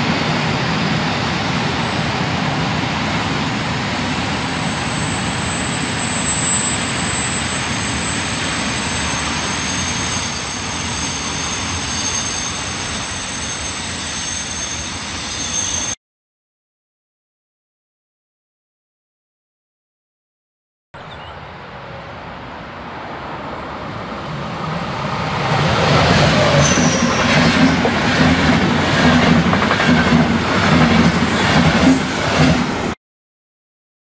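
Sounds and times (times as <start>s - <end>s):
wheels squealing: 3.2s - 16.0s, 26.1s - 28.0s
train wagons rumbling and rattling: 23.7s - 33.0s.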